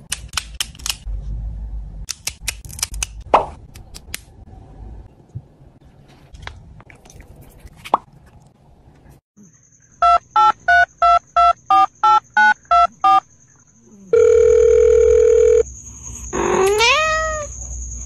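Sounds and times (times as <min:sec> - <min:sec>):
long steady phone tone: 0:14.1 - 0:15.7.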